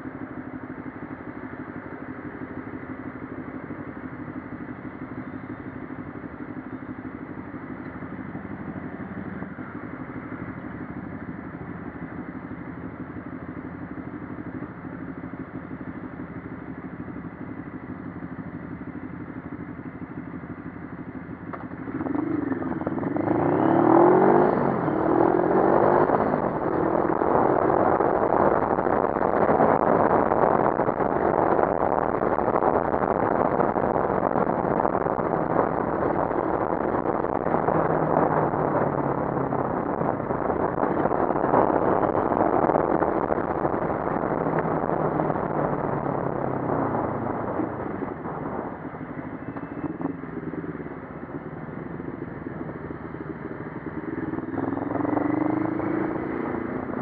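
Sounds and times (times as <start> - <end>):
motorcycle engine revving: 20.4 - 57.0
wind noise: 22.2 - 57.0.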